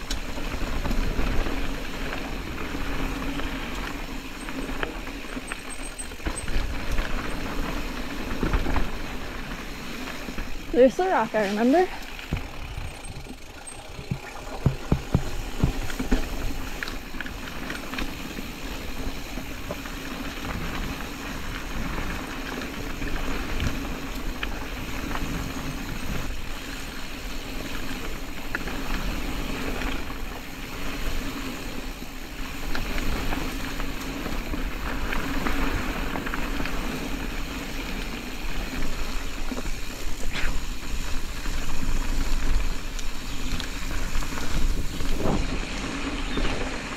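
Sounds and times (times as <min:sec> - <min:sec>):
bike rattling: 0:00.0 - 0:46.9
bike tyres rolling on dirt: 0:00.0 - 0:46.9
sharp knocks over rocks: 0:14.0 - 0:16.3.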